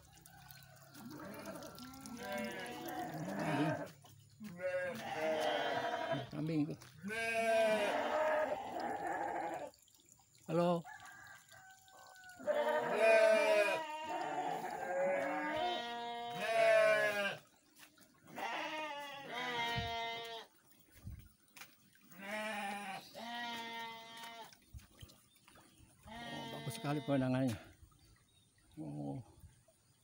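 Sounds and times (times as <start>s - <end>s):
goats bleating: 1.1s - 9.7s, 12.4s - 17.4s, 18.3s - 20.5s, 22.2s - 24.5s, 26.0s - 27.2s.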